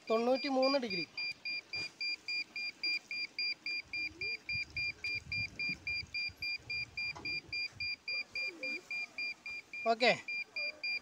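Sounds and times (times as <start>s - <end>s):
satellite meter beeping: 0.0s - 11.0s.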